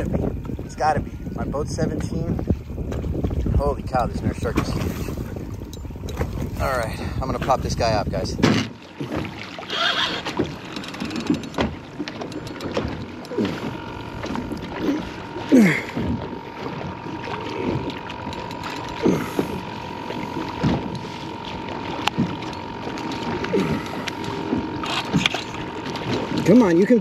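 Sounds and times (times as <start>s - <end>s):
water splashing against boat hull: 0.0s - 27.0s.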